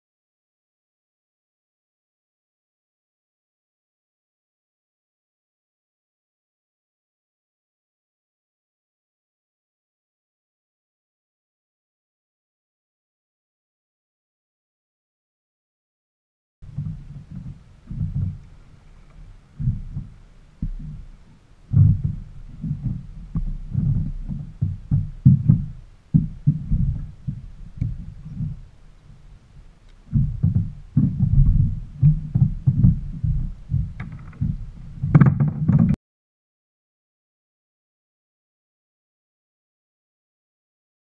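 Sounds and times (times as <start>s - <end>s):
wind buffeting microphone: 16.6s - 36.0s.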